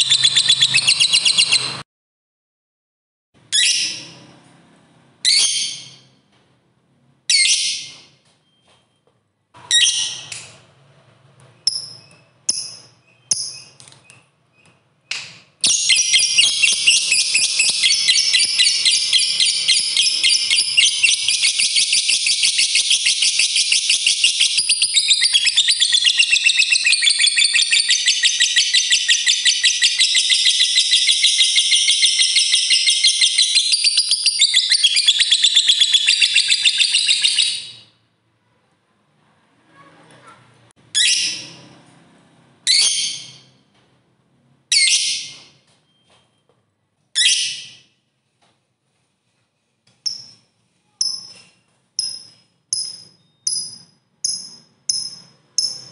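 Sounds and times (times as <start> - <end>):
lovebird shrieking and trilling: 15.7 - 37.8.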